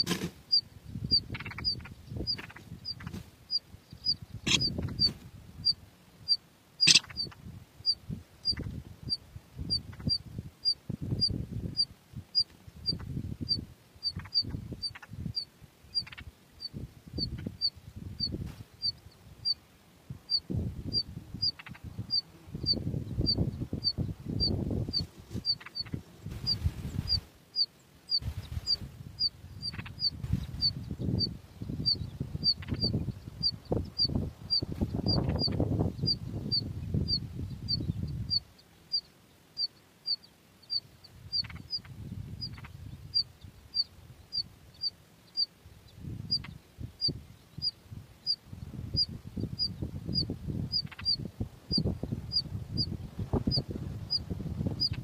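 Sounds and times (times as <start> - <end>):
short high chirps: 6.8 - 7.3.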